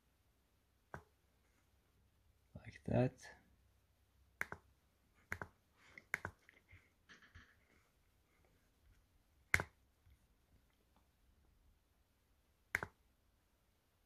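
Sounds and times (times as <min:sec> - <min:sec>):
computer mouse clicks: 0:04.4 - 0:06.6, 0:12.7 - 0:13.0.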